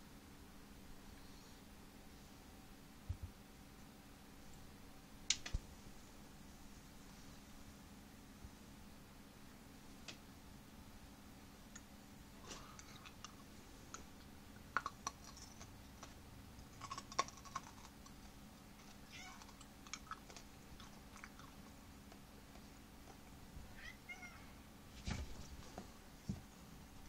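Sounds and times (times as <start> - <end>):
cat meowing: 19.0 - 19.6, 23.7 - 24.6.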